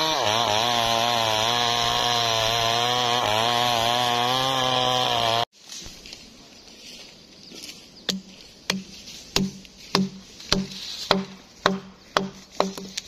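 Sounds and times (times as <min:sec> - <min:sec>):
wooden mallet knocking on log: 0:08.1 - 0:13.0.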